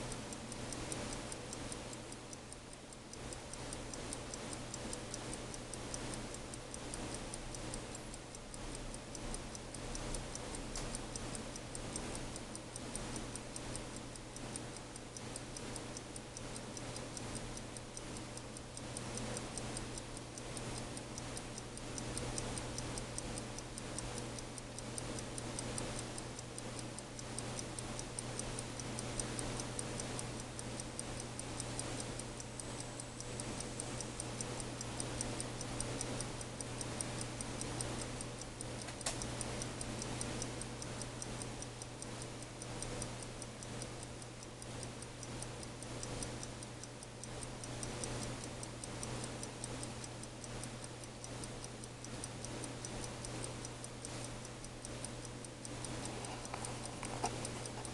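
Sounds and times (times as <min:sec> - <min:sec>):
pocket watch ticking rapidly: 0:00.0 - 0:57.9.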